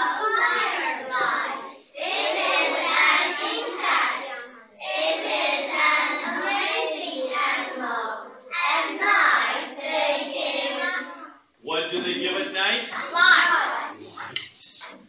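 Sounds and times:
girls reading aloud in unison: 0:00.0 - 0:11.6, 0:12.7 - 0:15.0.

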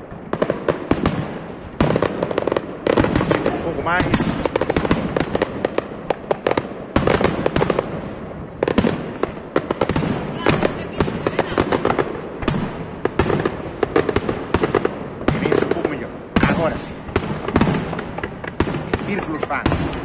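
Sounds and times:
fireworks bangs and crackling: 0:00.0 - 0:20.0.

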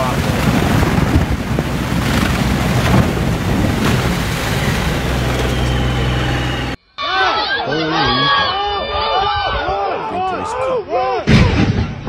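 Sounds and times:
low vehicle drone: 0:00.0 - 0:06.8
tyres churning through slushy water: 0:00.0 - 0:06.8.

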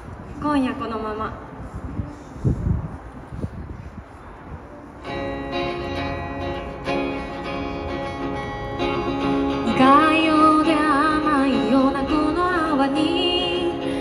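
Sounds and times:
acoustic guitar strumming chords: 0:05.0 - 0:14.0.

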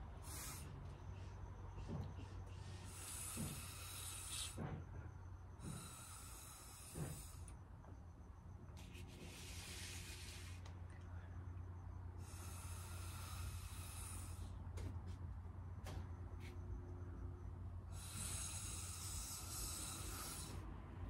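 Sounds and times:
blowing through a straw: 0:00.2 - 0:00.7, 0:02.7 - 0:04.6, 0:05.6 - 0:07.5, 0:08.8 - 0:10.6, 0:17.9 - 0:20.6
person breathing: 0:12.2 - 0:14.6.

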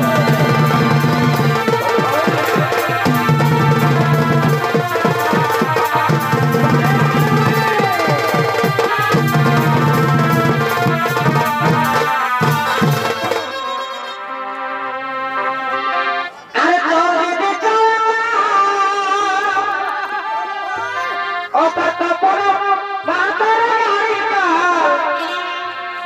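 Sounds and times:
drums beating: 0:00.0 - 0:14.4
reed instrument melody: 0:00.0 - 0:17.4, 0:19.0 - 0:26.0.

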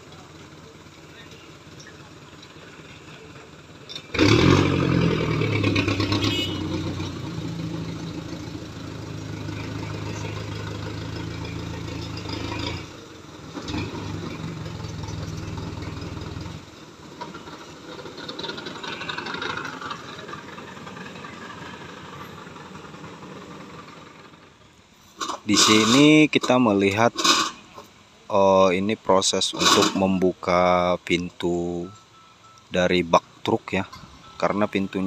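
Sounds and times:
truck engine driving past: 0:00.0 - 0:26.1.

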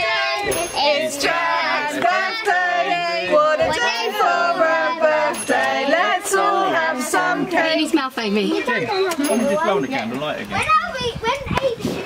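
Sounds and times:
high child-like singing voices: 0:00.0 - 0:07.7, 0:10.5 - 0:12.0.

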